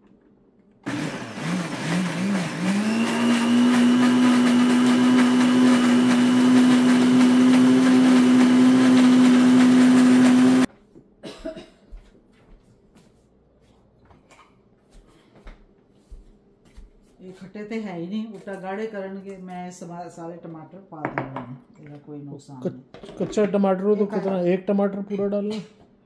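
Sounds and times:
blender motor whining: 0.8s - 10.7s.

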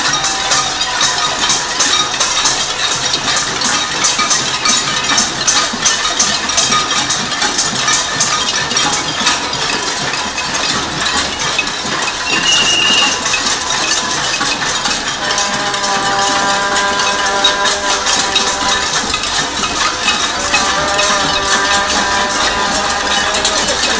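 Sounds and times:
crowd banging pots and pans: 0.0s - 23.9s
held pitched tone: 12.2s - 13.3s, 15.1s - 23.9s
brief high tone: 12.3s - 13.2s.

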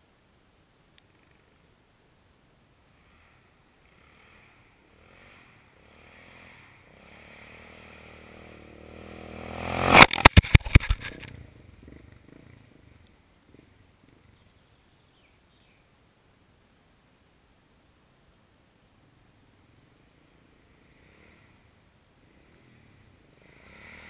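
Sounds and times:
dirt bike engine: 2.8s - 14.6s, 19.1s - 24.0s.

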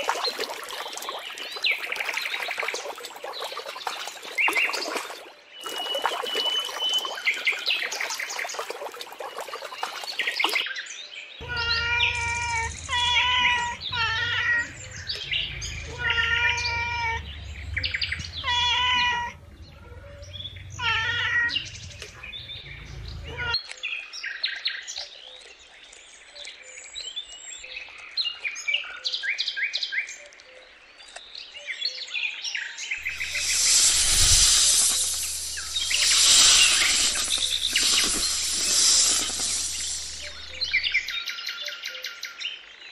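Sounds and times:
high bird chirps: 3.4s - 8.5s, 33.0s - 41.2s
cat meowing: 11.4s - 14.8s, 15.8s - 17.2s, 18.4s - 19.4s, 20.8s - 21.6s
snake hissing: 33.0s - 41.1s.

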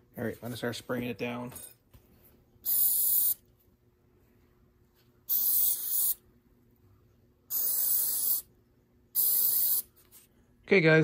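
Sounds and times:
aerosol spray hissing: 2.6s - 3.4s, 5.3s - 6.2s, 7.5s - 8.5s, 9.2s - 9.9s.

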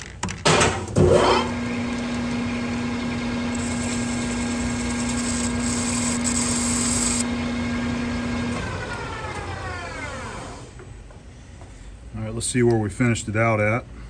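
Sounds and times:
lathe motor hum: 2.6s - 9.6s
spindle winding down whine: 3.4s - 7.3s
high cutting hiss: 3.5s - 7.2s.

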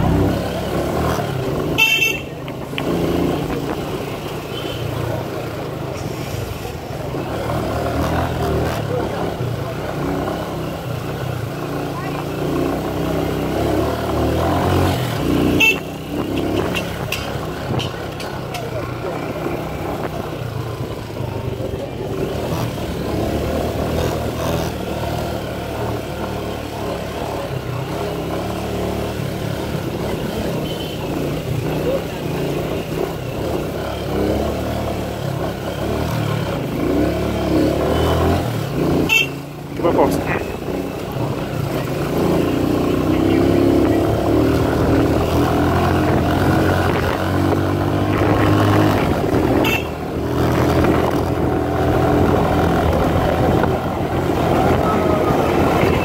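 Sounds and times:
motorcycle engine running: 6.9s - 56.0s.

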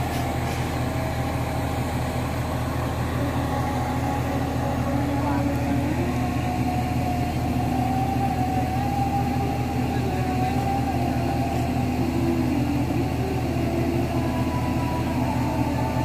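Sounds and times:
diesel engine running under load: 0.0s - 16.0s.

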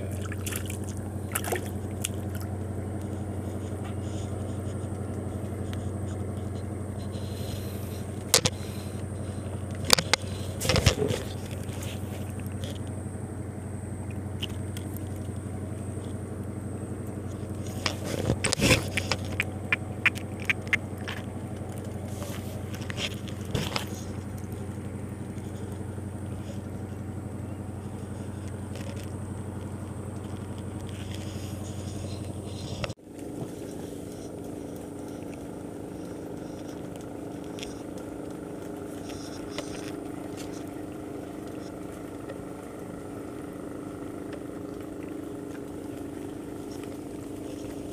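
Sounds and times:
engine-like drone: 0.0s - 47.9s
sharp clicks and scrapes: 3.0s - 12.9s, 17.3s - 24.7s, 30.2s - 40.8s.

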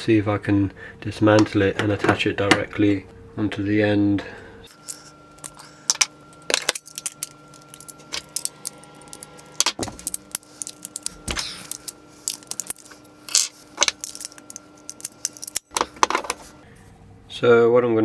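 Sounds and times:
metal tools clinking: 4.7s - 16.5s.

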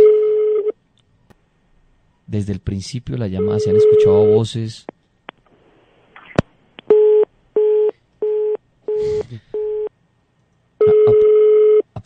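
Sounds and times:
busy tone beeps: 3.4s - 4.4s, 10.8s - 11.8s
line noise crackle: 3.4s - 8.4s.

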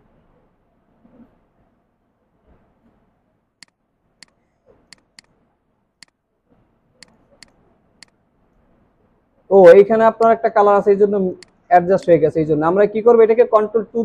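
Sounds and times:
computer mouse and keyboard clicks: 3.6s - 5.4s, 7.0s - 8.2s, 11.4s - 12.1s.

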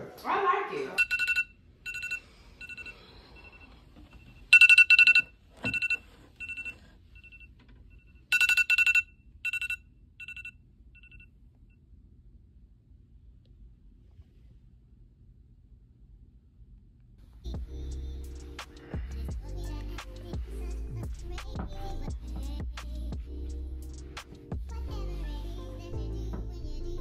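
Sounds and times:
phone alarm beeps: 1.0s - 11.3s.

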